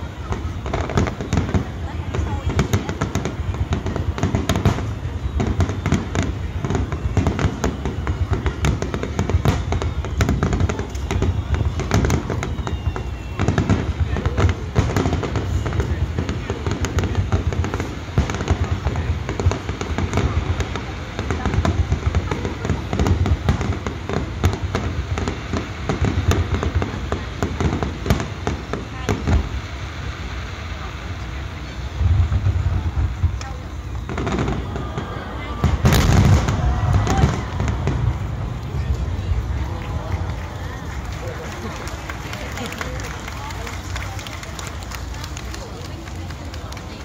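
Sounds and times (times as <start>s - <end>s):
fireworks bangs and crackles: 0.0s - 47.0s.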